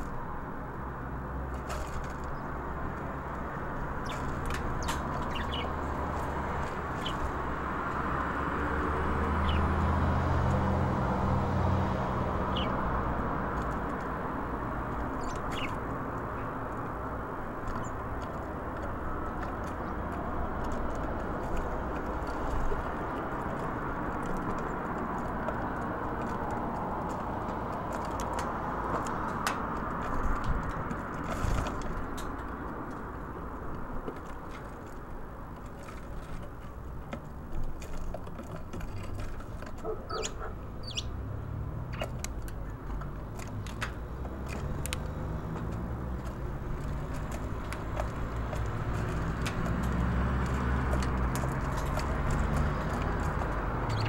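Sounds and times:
beaks pecking on wood: 0:00.0 - 0:54.0
traffic rumble: 0:00.0 - 0:54.0
high bird chirps: 0:04.0 - 0:05.8, 0:12.5 - 0:12.8, 0:15.2 - 0:15.8, 0:40.1 - 0:41.2.

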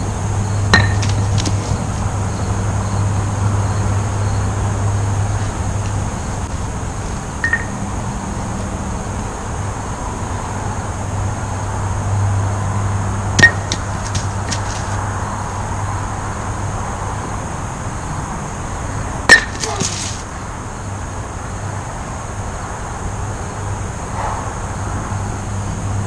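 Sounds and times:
steady low hum: 0:00.0 - 0:26.0
wooden batons striking wooden blocks: 0:00.7 - 0:01.9, 0:13.4 - 0:15.0, 0:19.3 - 0:20.2.

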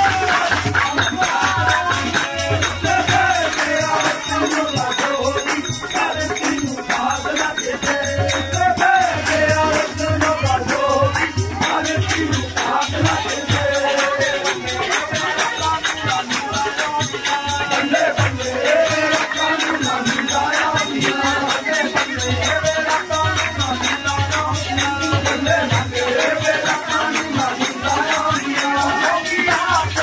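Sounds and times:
dholak drum beating: 0:00.0 - 0:30.0.

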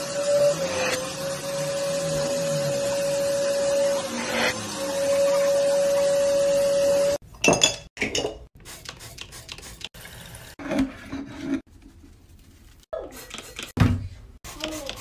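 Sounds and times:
vacuum nozzle whine: 0:00.0 - 0:07.2
hard items clinking in sink: 0:07.2 - 0:08.5.

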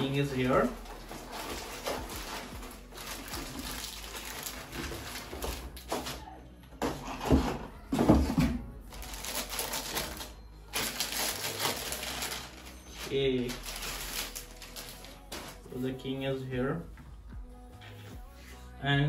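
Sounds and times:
packaging rustling and crinkling: 0:00.0 - 0:06.2, 0:08.9 - 0:15.9.

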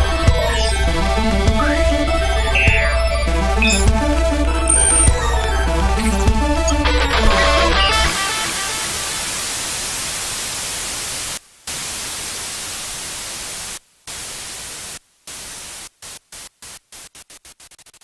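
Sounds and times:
white-noise static hiss: 0:07.1 - 0:18.0.

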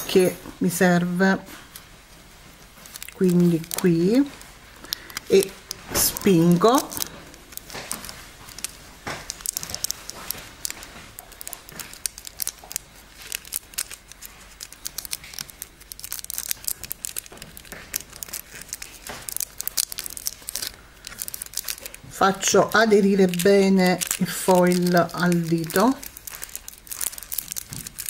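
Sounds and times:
foil crinkling: 0:02.6 - 0:28.0.

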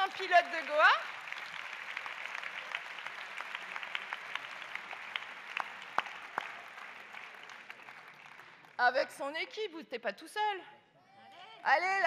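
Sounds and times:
crowd applause: 0:00.0 - 0:08.8.

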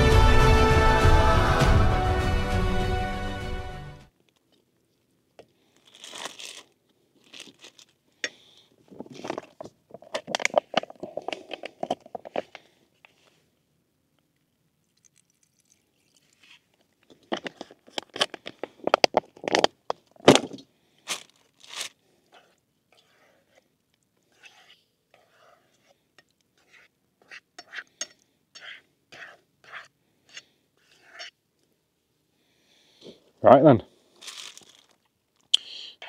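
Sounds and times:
music: 0:00.0 - 0:04.1
crinkling and crunching handling: 0:04.2 - 0:24.3, 0:34.0 - 0:35.5.

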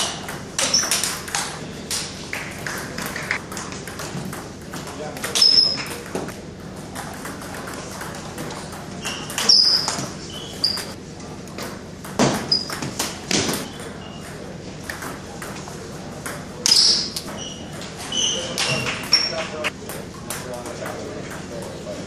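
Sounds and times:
sneakers squeaking on wooden floor: 0:00.0 - 0:01.2, 0:05.3 - 0:06.3, 0:08.9 - 0:11.0, 0:12.2 - 0:14.4, 0:16.6 - 0:19.7
ping pong ball hits: 0:00.0 - 0:10.9, 0:11.6 - 0:17.4.

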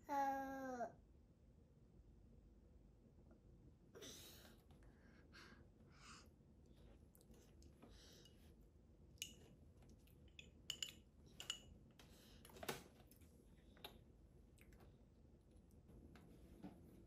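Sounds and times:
metal spoon clinking on glass bowl: 0:10.4 - 0:11.7.

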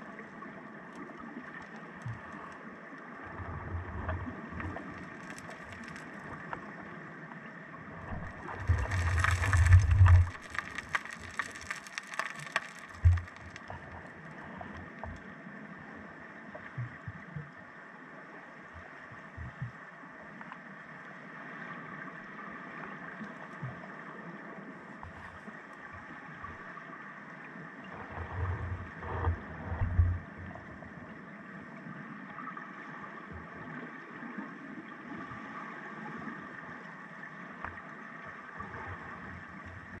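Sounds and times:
deep thumps of surging water: 0:08.1 - 0:13.8.

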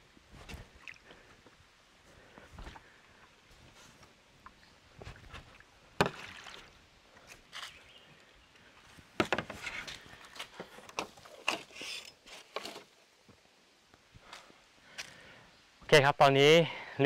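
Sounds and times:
leaves and branches rustling: 0:00.0 - 0:15.8
bamboo poles clacking: 0:09.2 - 0:13.0.

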